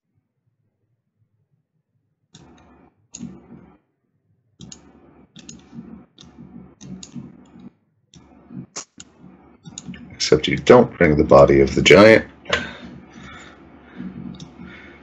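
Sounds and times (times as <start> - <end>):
mouse and keyboard clicking: 4.6 - 10.0, 14.3 - 14.6.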